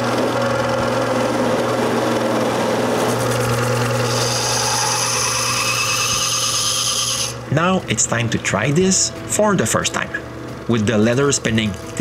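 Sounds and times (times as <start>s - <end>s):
bench grinder motor running: 0.0s - 7.5s.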